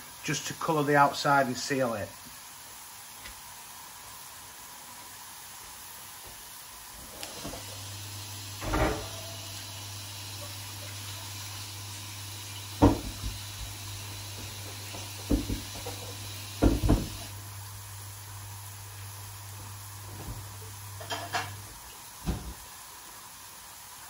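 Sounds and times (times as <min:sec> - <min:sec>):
kitchen knocks and bumps: 0:08.6 - 0:09.3, 0:12.8 - 0:13.4, 0:14.9 - 0:17.2, 0:22.2 - 0:22.6.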